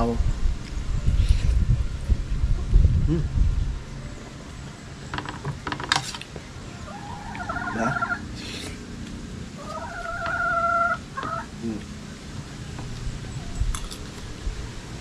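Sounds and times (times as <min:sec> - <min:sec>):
chickens calling: 0:06.1 - 0:11.8.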